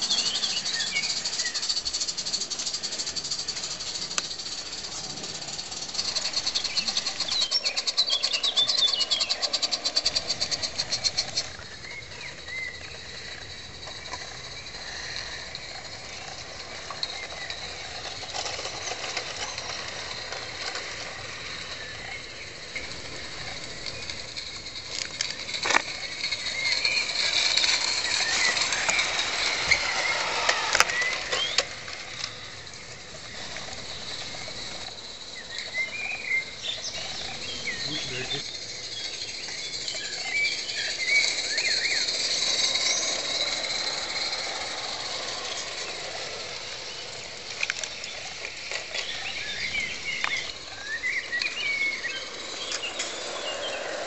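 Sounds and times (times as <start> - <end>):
steam locomotive beat: 0.0 - 11.5
birds chirping: 0.0 - 54.0.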